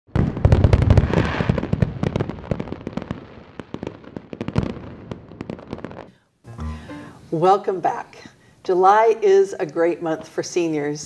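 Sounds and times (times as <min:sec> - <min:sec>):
fireworks boom: 0:00.1 - 0:06.1
fireworks crackling pops: 0:00.1 - 0:06.2.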